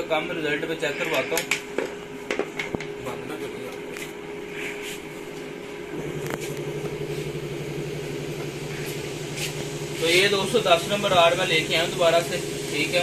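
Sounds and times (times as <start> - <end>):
welding machine humming: 0.0 - 13.0
low engine-like rumble: 5.8 - 13.0.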